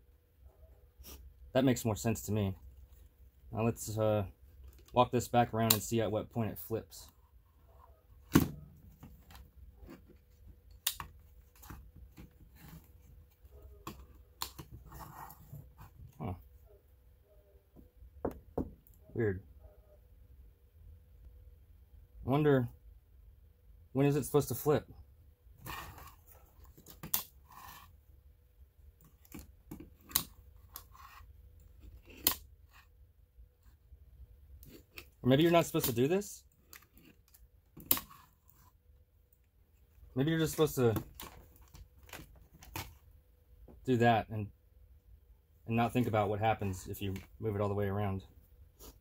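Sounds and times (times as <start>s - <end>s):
plastic and cable rubbing: 7.0s - 16.2s, 25.6s - 28.0s, 29.0s - 32.9s, 36.6s - 38.8s.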